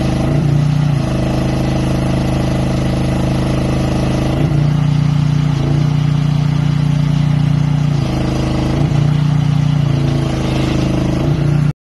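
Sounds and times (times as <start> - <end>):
excavator engine humming: 3.8 - 11.8.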